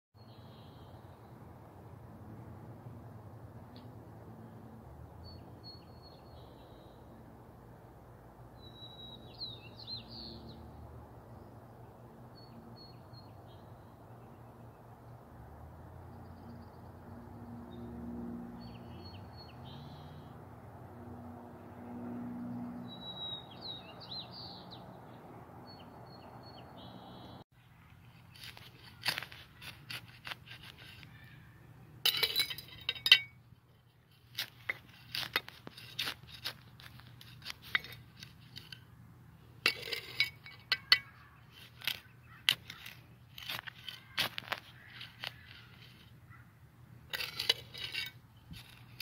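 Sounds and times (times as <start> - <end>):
bird chirps: 5.2 - 7.1, 8.6 - 10.6, 12.4 - 14.7, 18.6 - 20.4, 22.7 - 28.1
trowel scraping in soil: 28.1 - 31.2, 34.1 - 38.9, 39.6 - 46.2, 47.1 - 49.0.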